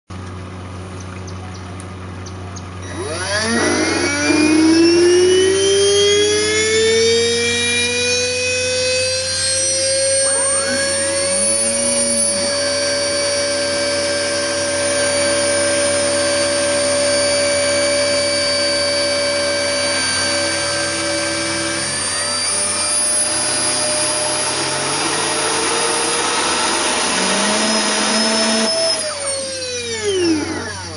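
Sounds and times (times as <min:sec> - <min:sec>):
high motor whine: 0:00.2 - 0:30.9
cooling blower: 0:01.7 - 0:30.9.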